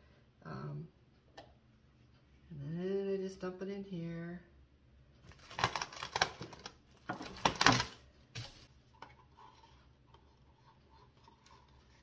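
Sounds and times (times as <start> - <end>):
plastic cups rustling and clattering: 5.3 - 12.0.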